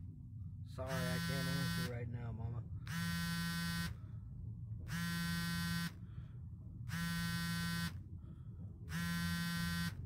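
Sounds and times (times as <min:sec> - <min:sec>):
mobile phone vibrating: 0:00.8 - 0:02.0, 0:02.8 - 0:04.0, 0:04.8 - 0:06.0, 0:06.8 - 0:08.1, 0:08.9 - 0:10.0.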